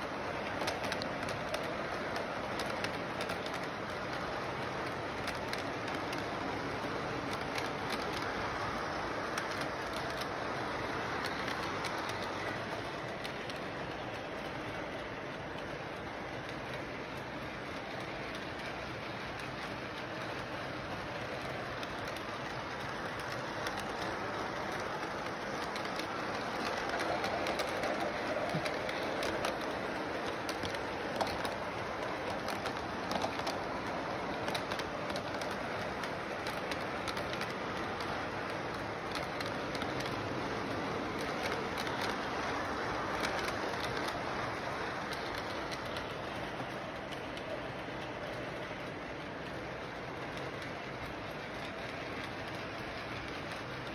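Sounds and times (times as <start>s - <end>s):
model train whirring: 0.0s - 53.9s
wheels clicking over rail joints: 0.0s - 53.9s.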